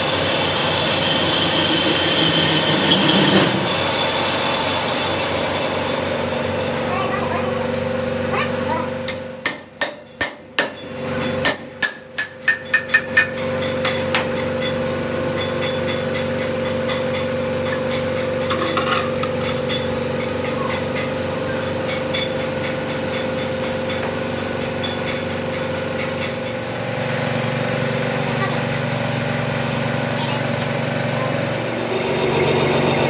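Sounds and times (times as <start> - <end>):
workshop machine hum: 0.0 - 33.0
hammer striking steel: 8.8 - 18.6.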